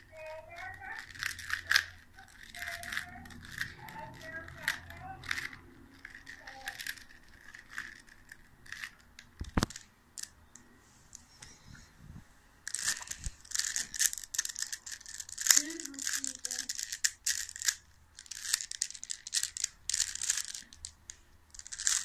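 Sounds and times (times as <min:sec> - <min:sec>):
puzzle cube layers clicking: 0:01.0 - 0:03.8, 0:12.7 - 0:22.0.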